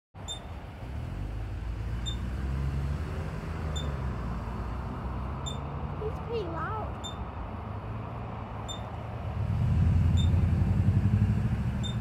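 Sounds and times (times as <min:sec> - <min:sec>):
ground squirrel alarm call beeps: 0:00.2 - 0:00.6, 0:02.0 - 0:02.3, 0:03.7 - 0:04.0, 0:05.4 - 0:05.7, 0:07.0 - 0:07.3, 0:08.6 - 0:09.0, 0:10.1 - 0:10.4, 0:11.8 - 0:12.0.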